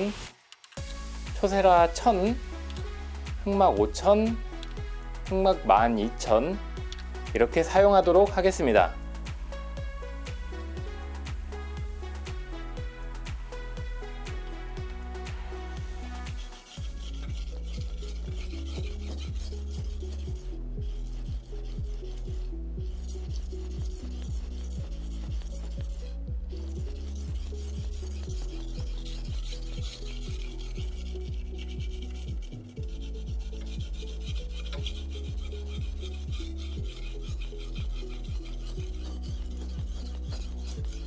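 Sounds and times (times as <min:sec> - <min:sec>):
electronic music with beat: 0:00.0 - 0:41.0
knife scraping on whetstone: 0:15.2 - 0:41.0.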